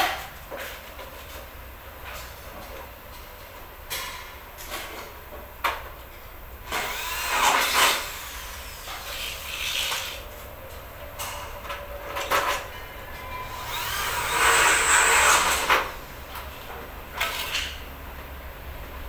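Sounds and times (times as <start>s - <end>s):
cordless drill whining: 6.7s - 10.2s, 13.5s - 15.9s.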